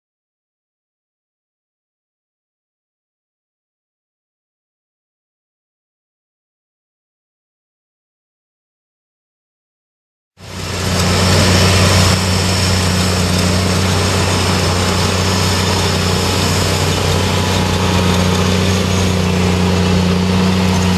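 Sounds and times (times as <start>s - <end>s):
diesel engine humming: 10.4s - 20.9s.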